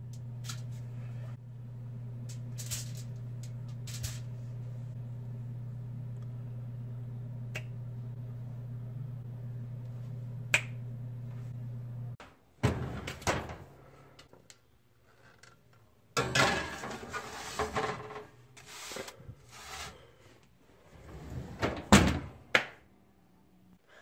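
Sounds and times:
steady low hum: 0:00.0 - 0:12.2
metal baking sheet clattering: 0:16.2 - 0:18.3.

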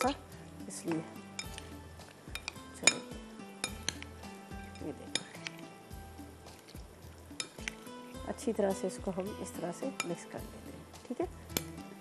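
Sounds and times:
background music: 0:00.0 - 0:12.0
spoon clinking against glass bowl: 0:01.3 - 0:01.6, 0:02.3 - 0:04.1, 0:04.7 - 0:05.4, 0:07.3 - 0:07.8, 0:09.9 - 0:10.2.

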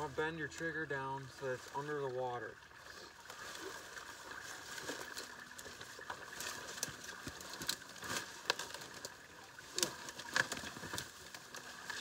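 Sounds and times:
dry stalks rustling and crunching: 0:00.0 - 0:12.0.

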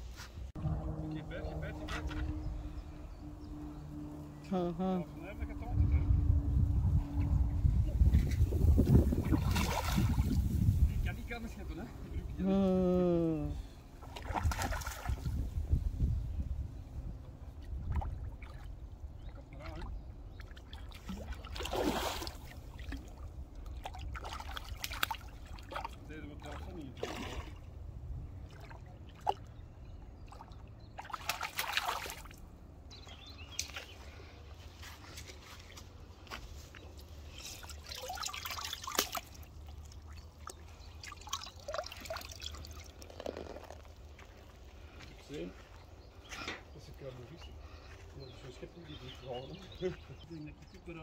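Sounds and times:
low rumble: 0:00.0 - 0:13.9
fish splashing in water: 0:09.2 - 0:10.5, 0:14.0 - 0:15.3, 0:17.8 - 0:27.7, 0:30.2 - 0:32.4, 0:37.5 - 0:44.2
water dripping and trickling: 0:17.3 - 0:27.3, 0:37.4 - 0:44.6.

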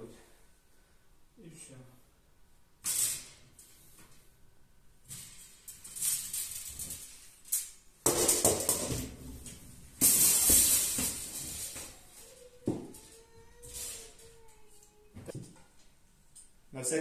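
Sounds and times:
metal drying rack rattling and clanking: 0:05.1 - 0:12.2.

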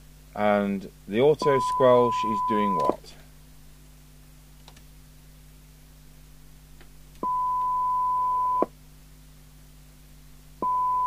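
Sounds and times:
faint low hum: 0:00.0 - 0:11.0
test tone through radio speaker: 0:01.4 - 0:03.0, 0:07.2 - 0:08.7, 0:10.6 - 0:11.0.

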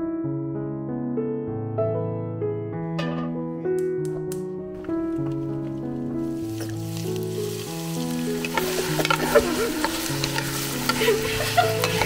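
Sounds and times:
background music with held notes: 0:00.0 - 0:12.0
wooden spatula scraping: 0:04.7 - 0:12.0
onions sizzling in hot oil: 0:05.4 - 0:12.0.

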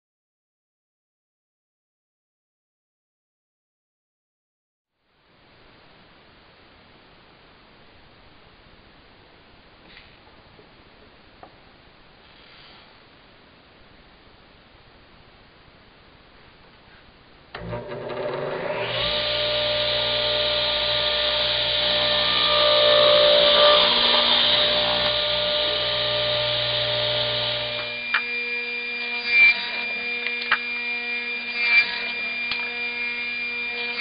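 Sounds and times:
saw cutting wood: 0:17.6 - 0:34.0
steady motor whine: 0:17.6 - 0:34.0.

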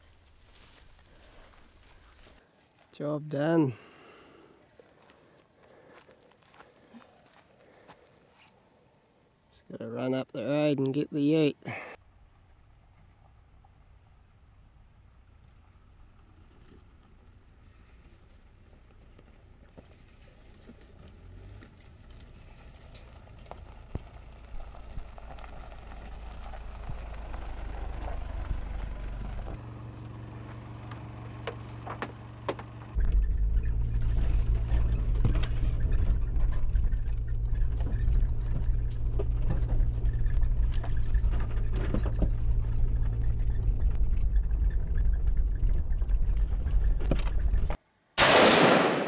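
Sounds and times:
vehicle engine drone: 0:12.0 - 0:47.8.

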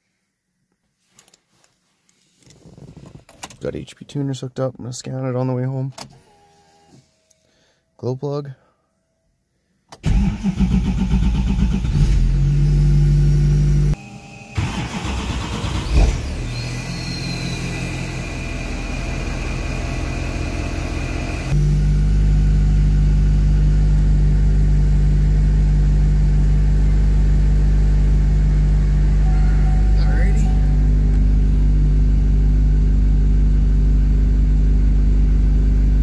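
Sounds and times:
diesel engine starting and idling: 0:10.0 - 0:36.0.

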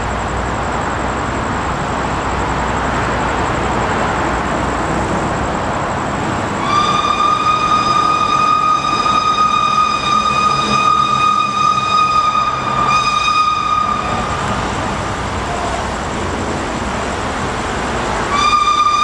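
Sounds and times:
train rushing noise: 0:00.0 - 0:19.0
locomotive whistle blowing: 0:06.5 - 0:16.2, 0:18.0 - 0:19.0.

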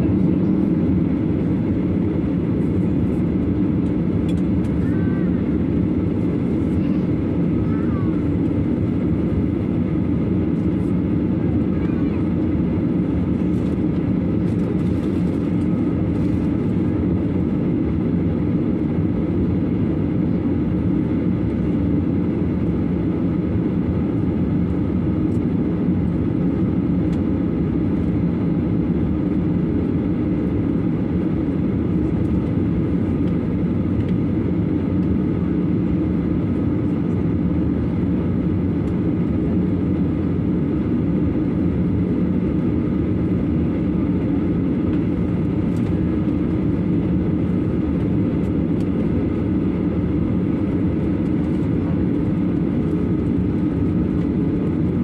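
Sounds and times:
jet engines droning in cabin: 0:00.0 - 0:55.0.

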